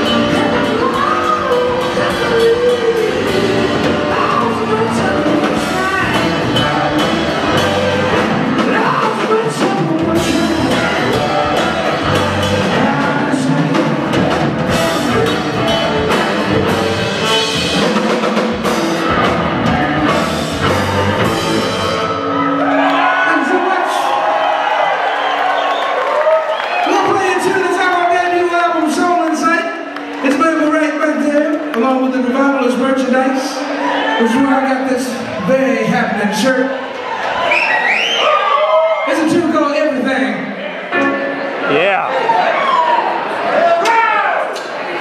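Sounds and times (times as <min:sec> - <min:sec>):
drums hitting steadily: 0:00.0 - 0:22.0
live rock band playing: 0:00.0 - 0:26.2, 0:26.8 - 0:37.8, 0:38.4 - 0:43.3.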